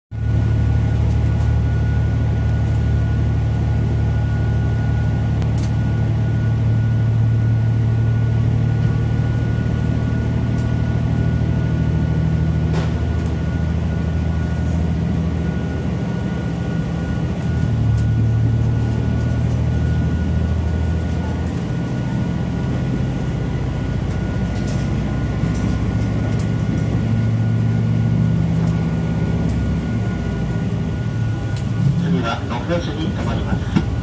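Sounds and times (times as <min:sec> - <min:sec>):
diesel railcar engine droning: 0:00.1 - 0:34.0
thin constant whine: 0:29.7 - 0:34.0.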